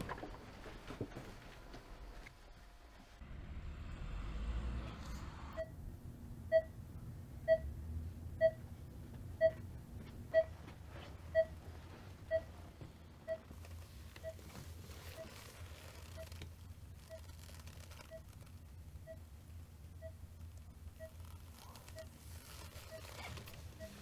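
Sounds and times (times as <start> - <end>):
low room hum: 0.0 - 24.0
heart monitor beeping: 6.5 - 6.8, 7.4 - 7.7, 8.4 - 8.6, 9.4 - 9.7, 10.3 - 10.6, 11.3 - 12.6, 13.2 - 16.4, 17.0 - 18.4, 19.0 - 19.3, 20.0 - 20.2, 20.9 - 24.0.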